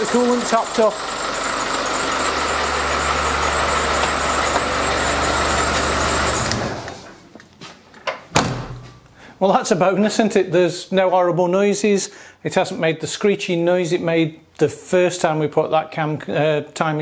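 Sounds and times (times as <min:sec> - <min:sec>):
diesel engine idling: 0:00.0 - 0:07.1.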